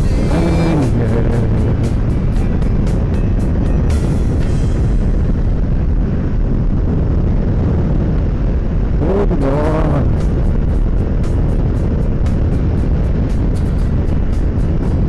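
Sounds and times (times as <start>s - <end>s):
wavering pitched sound: 0.0s - 6.2s
motorcycle engine rumble: 0.0s - 15.0s
wind buffeting microphone: 0.0s - 15.0s.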